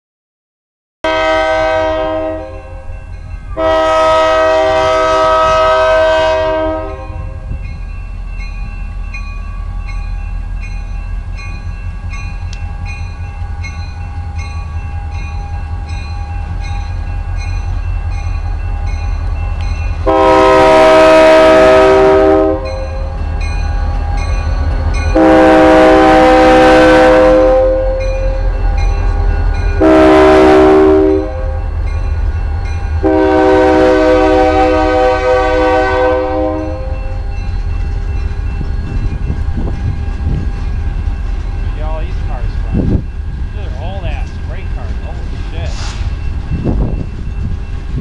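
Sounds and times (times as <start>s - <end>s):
train air horn blasts: 1.0s - 2.9s, 3.6s - 7.5s, 20.0s - 23.2s, 25.1s - 28.4s, 29.8s - 31.7s, 33.0s - 37.2s
locomotive engine rumble: 2.5s - 48.0s.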